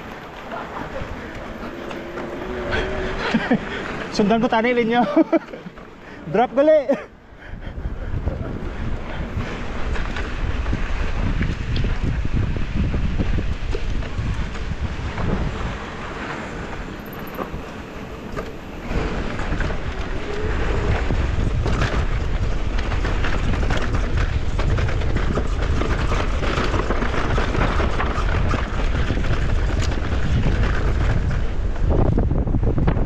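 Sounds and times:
bike rattling on dirt trail: 0.0s - 7.1s, 7.8s - 33.0s
wind buffeting microphone: 7.2s - 33.0s.

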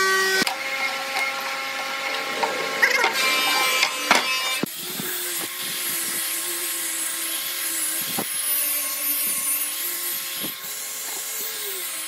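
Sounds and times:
angle grinder sanding wood: 0.0s - 12.0s.

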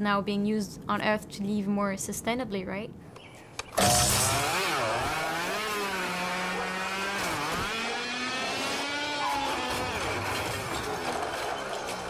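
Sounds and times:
lawnmower motor revving: 3.8s - 12.0s.

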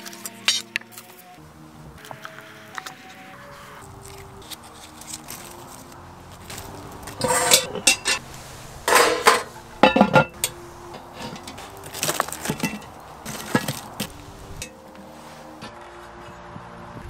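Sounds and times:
faint background music: 0.0s - 17.0s
metal lid clanking on pot: 7.2s - 8.2s, 8.9s - 14.8s.

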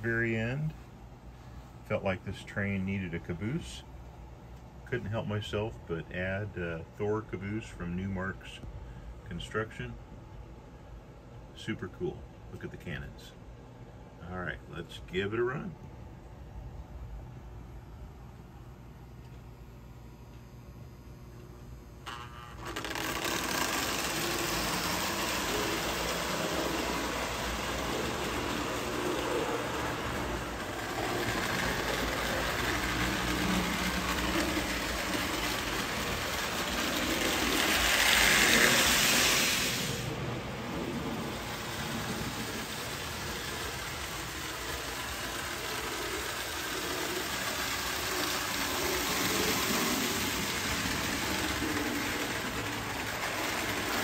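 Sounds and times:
toy train whirring on rails: 22.0s - 54.0s.

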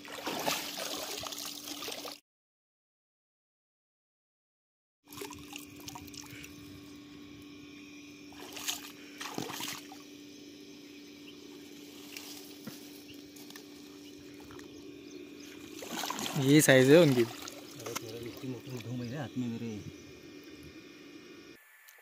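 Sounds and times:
splashes: 0.0s - 2.2s, 5.1s - 6.5s, 8.3s - 10.0s, 15.5s - 19.0s
water sloshing and trickling: 0.0s - 2.2s, 5.1s - 6.7s, 8.3s - 10.2s, 15.4s - 19.7s
low hum: 5.1s - 22.0s.

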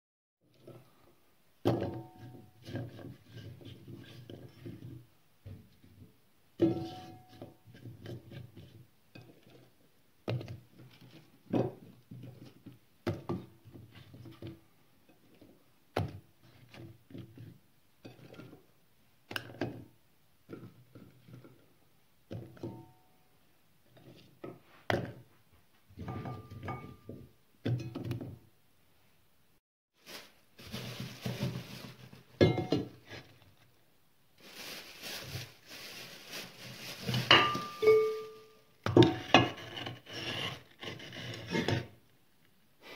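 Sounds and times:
pot ringing: 37.4s - 38.6s.

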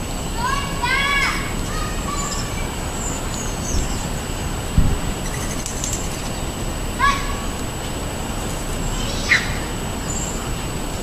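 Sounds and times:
steady background noise: 0.0s - 11.0s
songbirds chirping: 0.1s - 11.0s
dull low thump: 4.7s - 5.2s.

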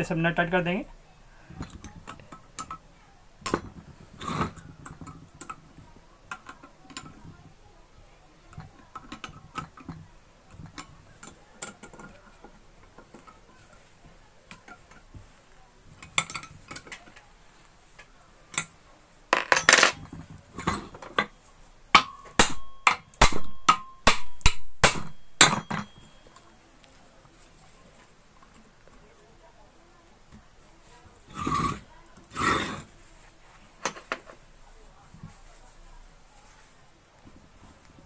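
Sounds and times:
metal hand tools scraping: 4.1s - 4.9s, 31.3s - 32.9s.

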